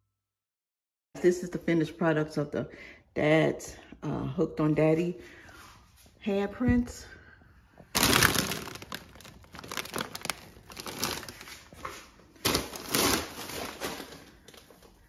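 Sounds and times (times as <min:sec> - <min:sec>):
crinkling rustling with clicks: 0:07.8 - 0:15.0.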